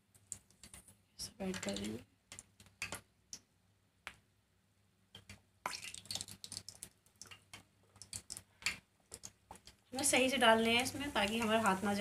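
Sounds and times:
hot oil crackling and spitting: 5.2 - 12.0.

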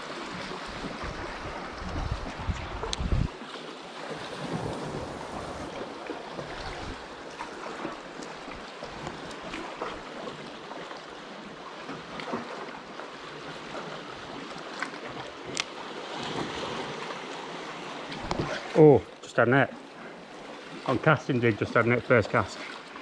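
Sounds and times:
sea water lapping against rocks: 0.0 - 23.0.

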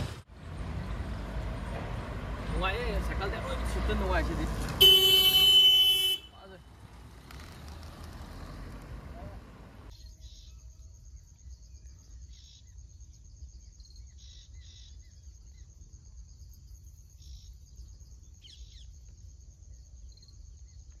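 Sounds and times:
insects trilling: 9.9 - 21.0.

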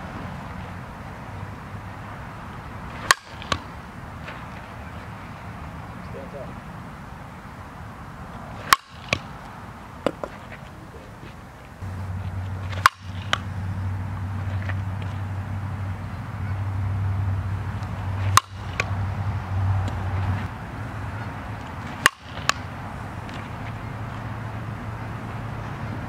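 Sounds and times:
bat cracking against softball: 2.2 - 5.8, 7.0 - 15.4, 17.6 - 24.4.

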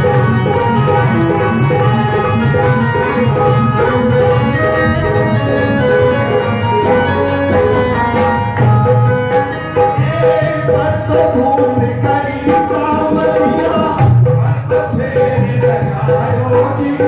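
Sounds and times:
man singing into a microphone: 0.0 - 8.4, 9.3 - 17.0
sustained melody notes: 0.0 - 11.2
hand drums beating: 0.0 - 17.0
jingling percussion: 0.0 - 17.0.

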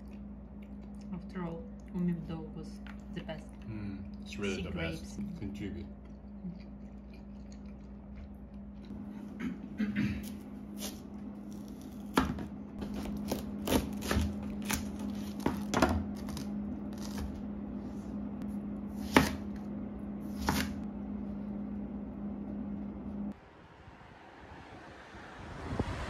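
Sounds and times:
steady low hum: 0.0 - 26.0
knife cutting on cutting board: 20.3 - 20.8.

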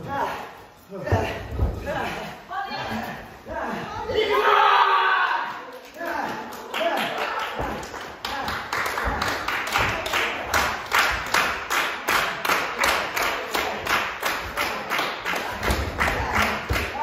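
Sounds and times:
audience rhythmic clapping: 5.6 - 17.0.

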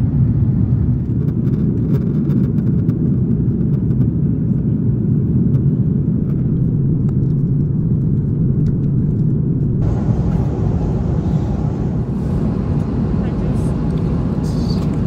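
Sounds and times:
deep engine and airflow rumble: 0.0 - 15.0
hissy cabin noise: 6.2 - 15.0.

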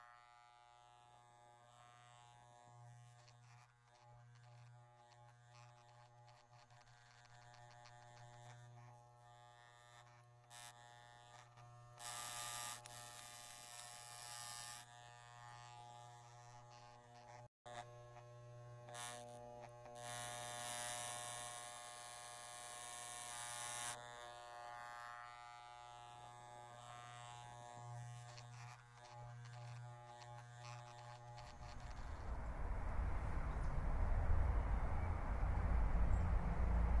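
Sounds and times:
electric hair clippers buzzing: 0.0 - 32.2
wind rumble on microphone: 31.6 - 37.0.

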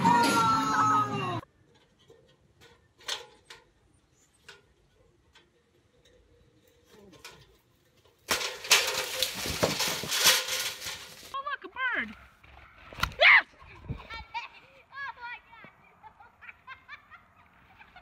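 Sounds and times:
crashing rustle of leaves: 8.3 - 11.4.

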